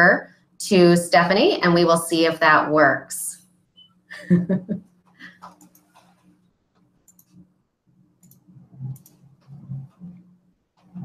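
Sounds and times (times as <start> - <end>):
steady low hum: 0.0 - 11.0
computer mouse clicks: 5.2 - 7.5, 8.2 - 10.0.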